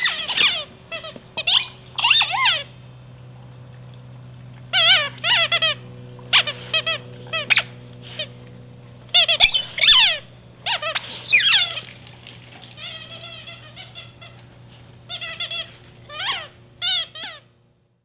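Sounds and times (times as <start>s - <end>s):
squeaky dog toy squeaking: 0.0s - 2.7s, 4.7s - 7.7s, 9.1s - 11.9s, 12.8s - 14.4s, 15.1s - 17.5s.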